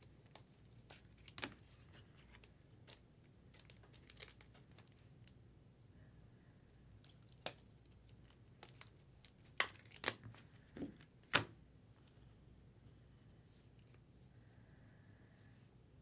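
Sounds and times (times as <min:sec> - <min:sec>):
foil wrapper crinkling: 0:01.1 - 0:05.1, 0:07.2 - 0:10.4.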